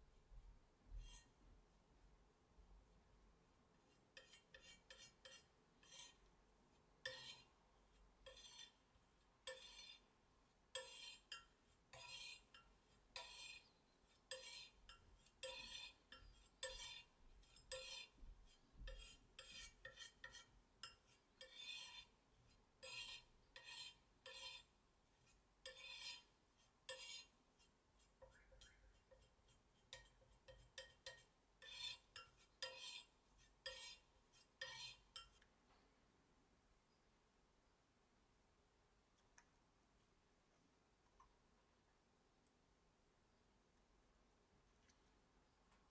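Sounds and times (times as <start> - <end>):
knife scraping and tapping on tile: 0.9 - 1.4, 3.8 - 6.3, 7.0 - 10.1, 10.7 - 35.5.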